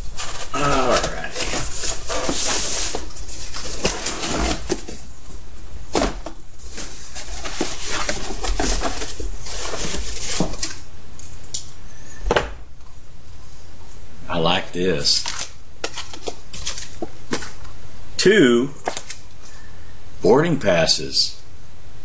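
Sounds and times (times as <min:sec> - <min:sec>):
cardboard rustling and scraping: 0:00.0 - 0:10.8, 0:15.2 - 0:17.6.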